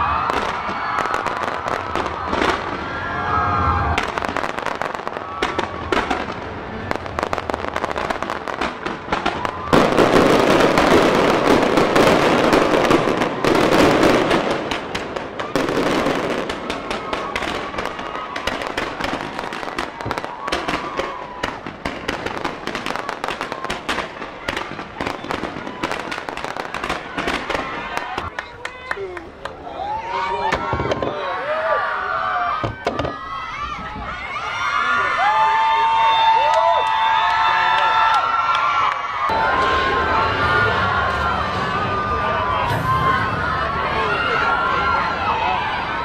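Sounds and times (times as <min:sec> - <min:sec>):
fireworks crackling and popping: 0:00.0 - 0:29.6, 0:30.4 - 0:31.3
rush of noise: 0:39.3 - 0:46.0.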